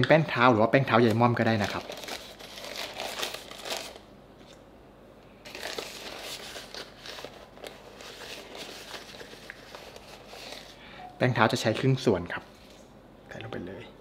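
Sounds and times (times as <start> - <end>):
plastic bag crinkling: 0.8 - 4.1, 5.4 - 10.8.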